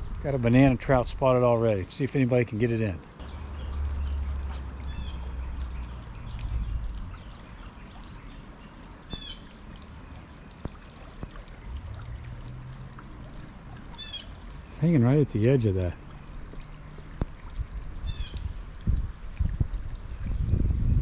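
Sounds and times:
creek water running: 0:00.0 - 0:21.0
bird chirping: 0:03.2 - 0:09.5, 0:13.9 - 0:14.8.

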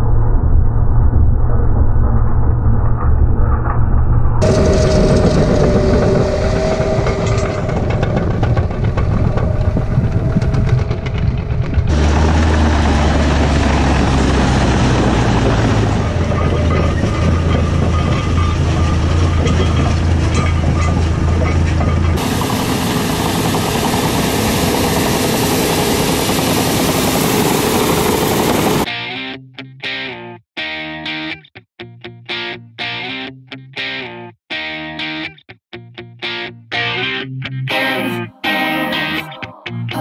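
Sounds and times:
strong low hum: 0:00.0 - 0:28.9
bulldozer diesel engine running: 0:04.4 - 0:28.9.

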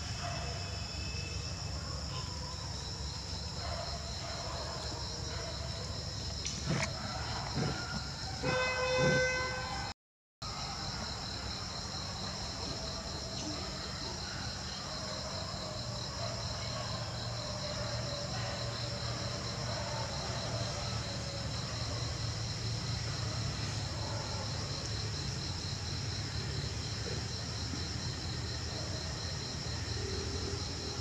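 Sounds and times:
insects chirring: 0:00.0 - 0:31.0.

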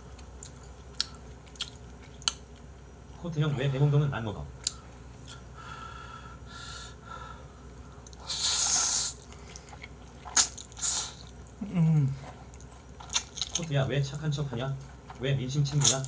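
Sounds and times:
noodles slurped: 0:08.1 - 0:11.4
wet chewing smacks: 0:09.1 - 0:16.0
person humming mm: 0:11.6 - 0:12.2.

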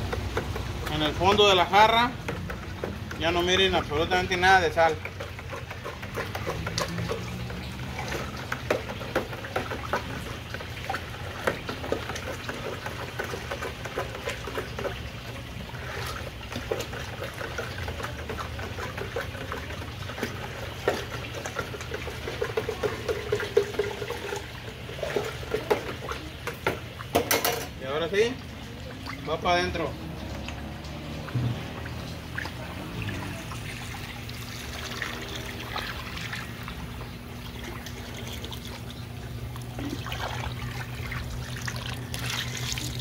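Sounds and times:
water sloshing in a plastic pitcher: 0:00.0 - 0:43.0.

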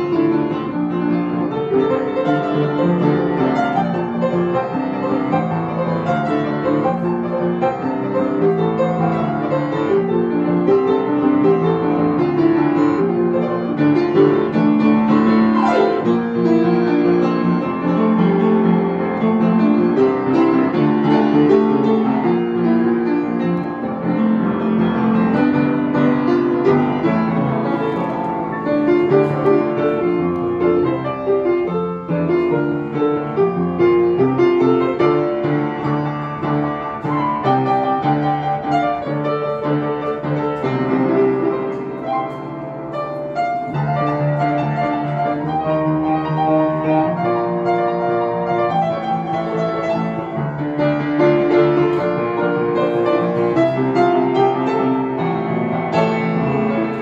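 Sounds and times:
upright piano playing: 0:00.0 - 0:57.0.

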